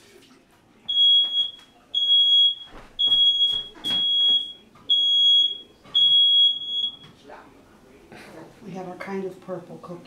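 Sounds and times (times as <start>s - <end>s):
smoke alarm beeping: 0.9s - 7.2s.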